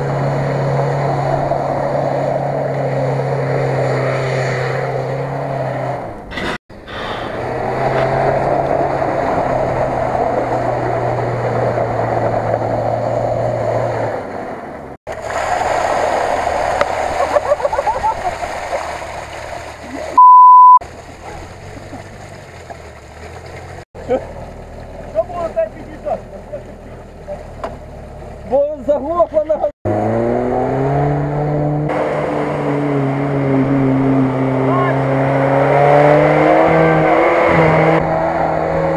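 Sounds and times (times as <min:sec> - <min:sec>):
engine drone: 0:00.0 - 0:38.9
water gushing and splashing: 0:06.3 - 0:12.8, 0:15.1 - 0:20.2, 0:20.8 - 0:28.6.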